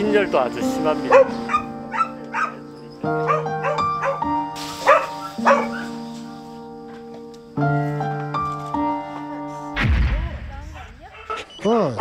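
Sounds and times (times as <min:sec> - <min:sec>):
background music with held chords: 0:00.0 - 0:09.8
dogs barking: 0:01.0 - 0:06.4, 0:10.8 - 0:12.0.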